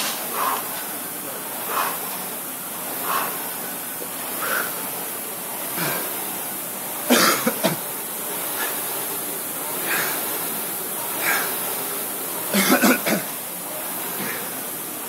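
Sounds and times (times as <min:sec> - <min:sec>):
rowing machine fan whirring: 0:00.0 - 0:15.0
harsh breathing or coughing: 0:01.6 - 0:02.2, 0:05.7 - 0:06.2, 0:07.0 - 0:07.9, 0:12.5 - 0:13.4.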